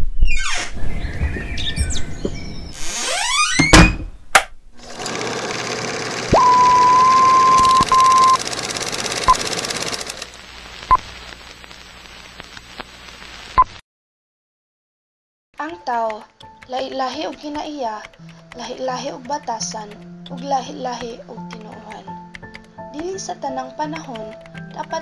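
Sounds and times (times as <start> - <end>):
film projector whirring: 4.8 - 13.6
high steady beep: 6.3 - 13.8
short blips: 6.3 - 13.8.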